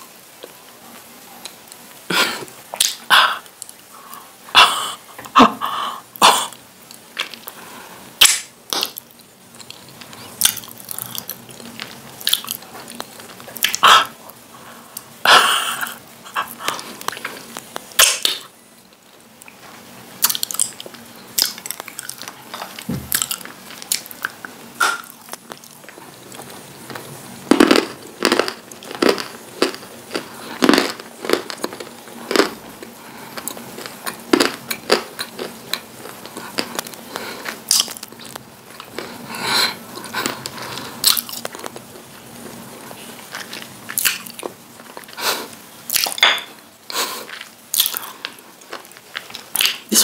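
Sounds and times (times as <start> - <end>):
chewing dry clay crunches: 20.2 - 39.2.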